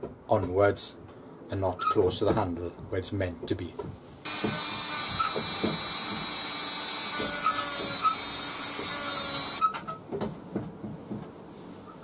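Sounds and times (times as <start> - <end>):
rotary tool grinding steel: 4.3 - 9.6.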